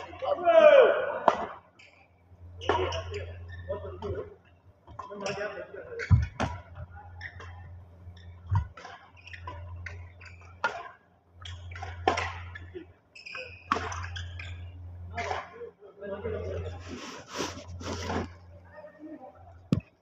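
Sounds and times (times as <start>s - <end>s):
low hall hum: 0.0s - 20.0s
rackets hitting shuttlecock: 8.5s - 12.7s.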